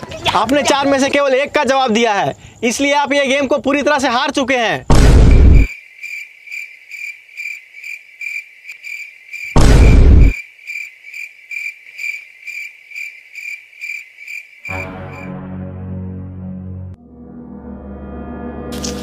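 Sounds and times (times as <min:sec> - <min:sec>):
crickets chirping: 0:00.0 - 0:15.3
loud boom: 0:04.9 - 0:05.7, 0:09.6 - 0:10.4.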